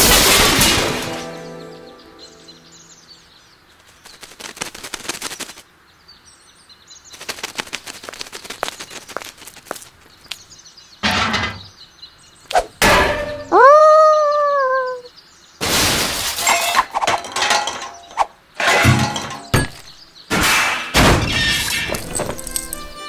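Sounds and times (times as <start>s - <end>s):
rapid sharp clicking and rattling: 4.0s - 5.6s, 7.1s - 9.8s
faint bird chirps: 13.4s - 15.6s.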